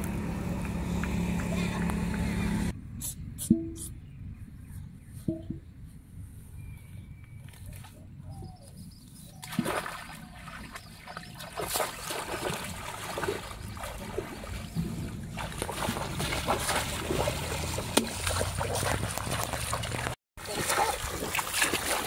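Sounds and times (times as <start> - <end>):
splashing through muddy water: 9.3 - 22.0
fish trap plunging into water: 11.5 - 22.0.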